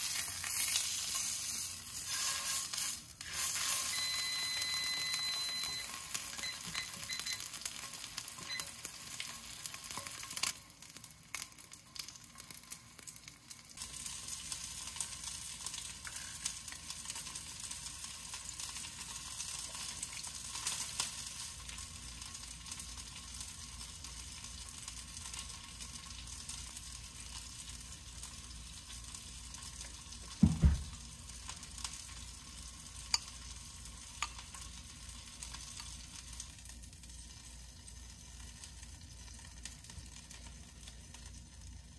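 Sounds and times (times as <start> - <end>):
food sizzling in a pan: 0.0 - 41.9
heavy thump: 30.4 - 31.0.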